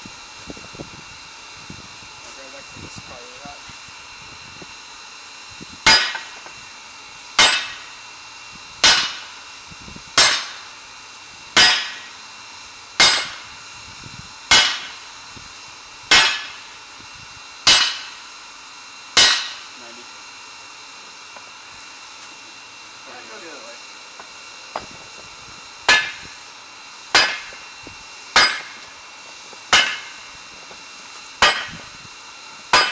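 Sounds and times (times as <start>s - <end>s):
hammer clanging on hot steel: 5.9s - 6.5s, 7.4s - 7.9s, 8.8s - 9.4s, 10.2s - 10.7s, 11.6s - 12.2s, 13.0s - 13.4s, 14.5s - 15.0s, 16.1s - 16.6s, 17.6s - 18.2s, 19.2s - 19.7s, 25.9s - 26.3s, 27.1s - 27.6s, 28.3s - 28.9s, 29.7s - 30.2s, 31.4s - 31.9s.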